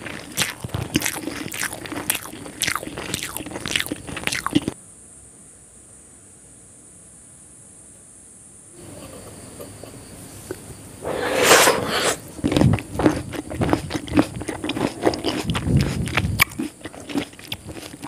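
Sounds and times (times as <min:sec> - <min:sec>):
chewing with crackles and wet clicks: 0:00.0 - 0:04.8, 0:12.3 - 0:18.0.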